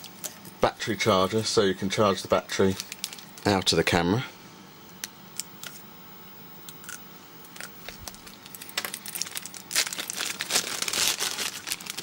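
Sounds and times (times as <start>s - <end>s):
plastic bag crinkling: 2.7s - 3.6s, 7.8s - 12.0s.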